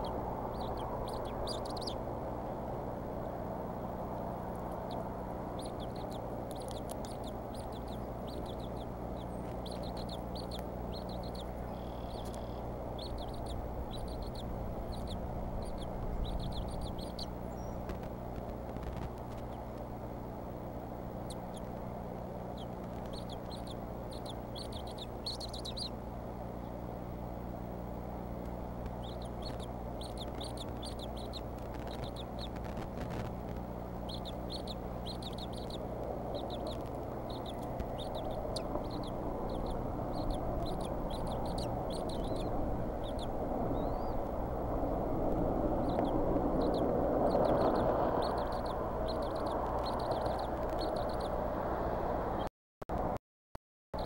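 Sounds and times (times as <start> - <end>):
eaglets chirping: 0.0 - 2.1, 4.4 - 18.0, 21.2 - 21.8, 22.5 - 26.0, 28.9 - 33.3, 34.0 - 51.4
steady low hum: 0.0 - 53.2
rushing noise: 34.9 - 52.5.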